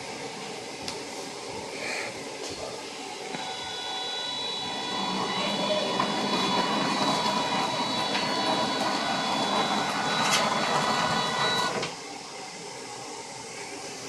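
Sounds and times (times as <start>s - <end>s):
electric motors whining: 3.0s - 12.2s.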